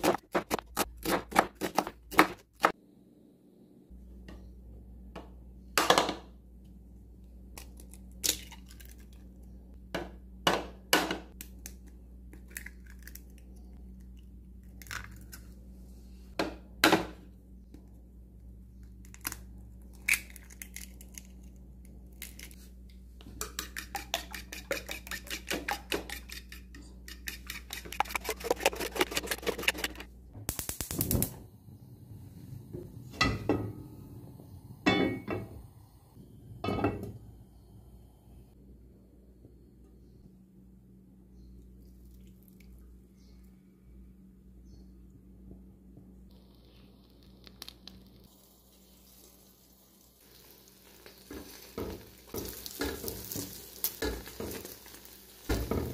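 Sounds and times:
eggs beaten in bowl: 23.2s - 30.1s.

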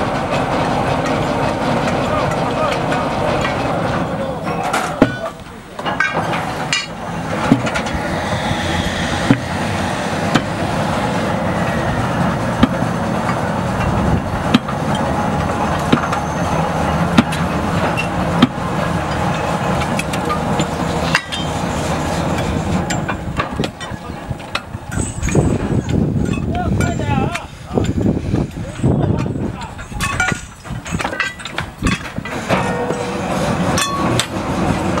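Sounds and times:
steam crane running: 0.0s - 35.0s
tools striking rails: 4.4s - 8.1s, 12.6s - 16.2s, 17.2s - 21.6s, 29.1s - 34.4s.

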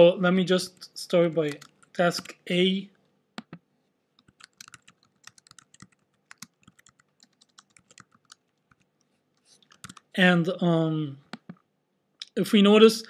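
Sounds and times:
typing on computer keyboard: 1.5s - 2.3s, 4.2s - 8.9s, 9.7s - 10.1s.

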